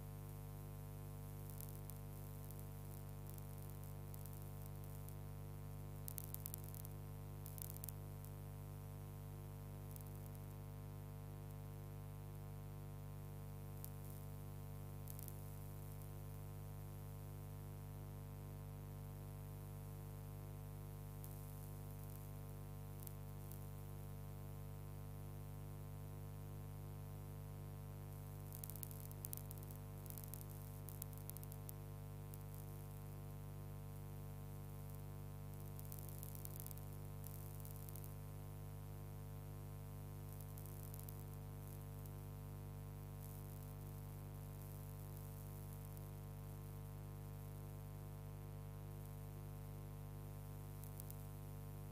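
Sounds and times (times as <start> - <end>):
faint crackle clicks: 0.2 - 18.4, 19.0 - 24.9, 26.8 - 50.0, 50.6 - 51.9
electrical hum: 27.1 - 49.8.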